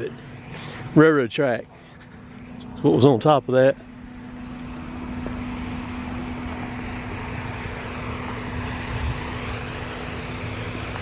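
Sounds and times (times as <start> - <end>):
distant engine running: 0.0 - 11.0.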